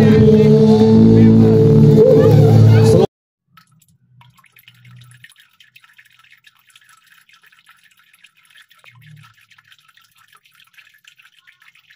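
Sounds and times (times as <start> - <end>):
low hum: 0.0 - 3.1.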